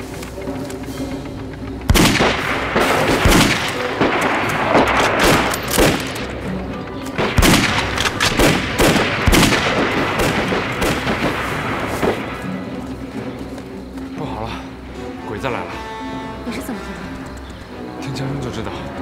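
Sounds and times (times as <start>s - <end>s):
background music: 0.0s - 19.0s
rifle gunshots: 1.9s - 6.4s, 7.2s - 12.4s.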